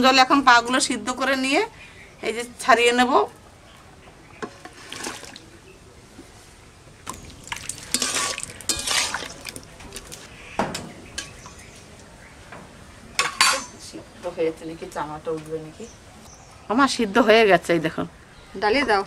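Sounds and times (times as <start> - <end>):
water splashing: 3.7 - 5.6, 7.0 - 10.3
metal tongs scraping a pan: 7.1 - 10.3.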